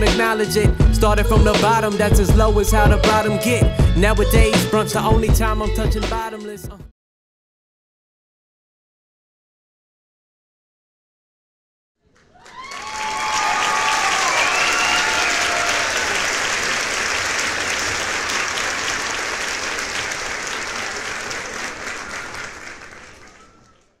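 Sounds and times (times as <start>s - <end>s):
crowd clapping: 12.1s - 24.0s.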